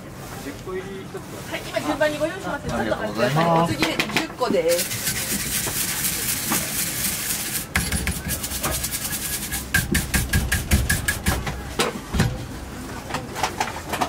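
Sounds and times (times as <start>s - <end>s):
rapid scraping on metal molds: 3.3s - 11.7s
knocks on cast iron: 9.7s - 12.4s.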